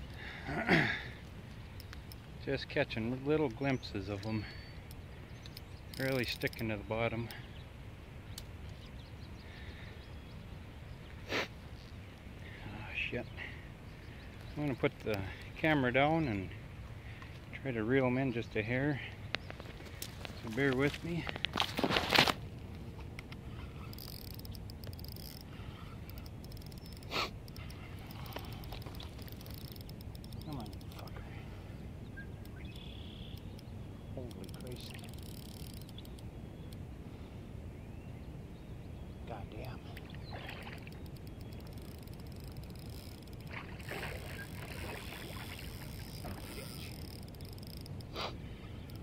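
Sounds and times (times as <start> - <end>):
fishing reel clicking: 4.9 - 6.7, 23.8 - 31.2, 34.3 - 36.2, 40.8 - 48.1
water sloshing: 39.8 - 48.0.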